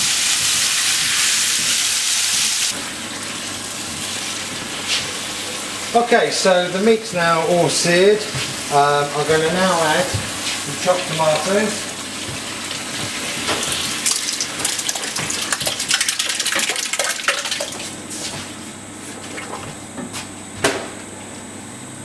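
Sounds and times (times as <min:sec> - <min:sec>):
tomatoes sizzling in hot pan: 0:00.0 - 0:06.0.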